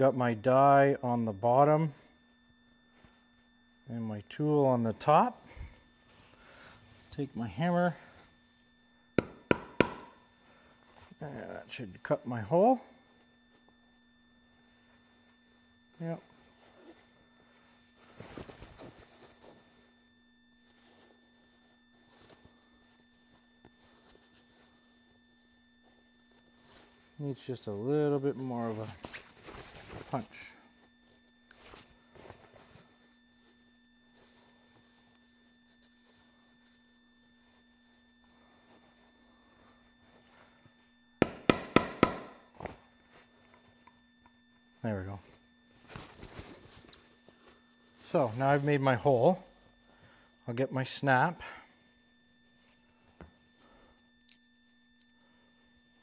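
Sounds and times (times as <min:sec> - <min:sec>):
faint steady hum: 0:00.0 - 0:56.0
hammer striking metal hole punch: 0:09.2 - 0:10.2, 0:41.2 - 0:42.4.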